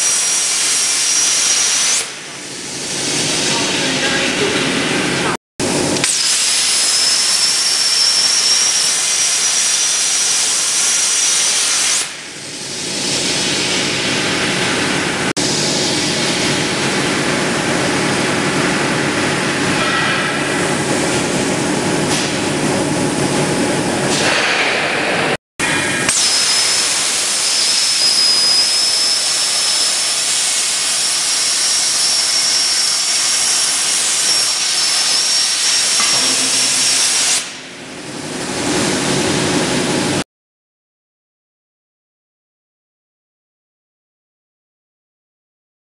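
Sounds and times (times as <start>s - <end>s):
plasma torch hissing: 35.0s - 37.7s.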